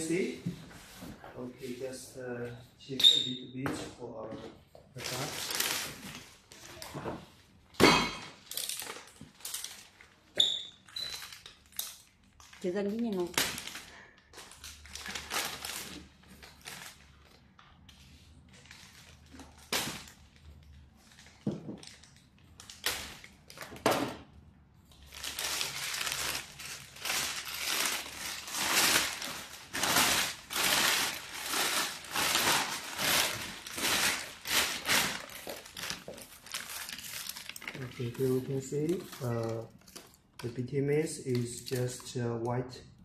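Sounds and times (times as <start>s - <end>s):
plastic bag crinkling: 5.0s - 6.9s, 8.4s - 17.5s, 24.9s - 40.4s.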